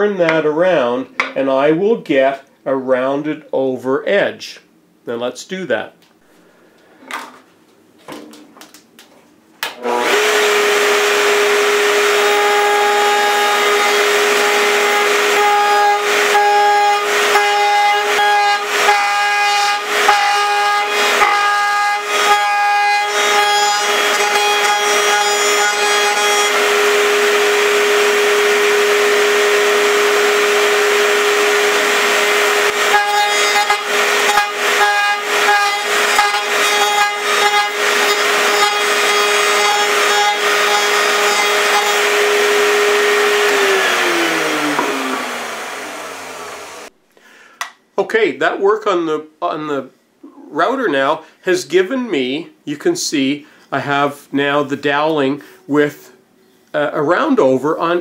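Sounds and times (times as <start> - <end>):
router high whine: 9.7 - 46.9
wood rasping against router bit: 9.9 - 45.6.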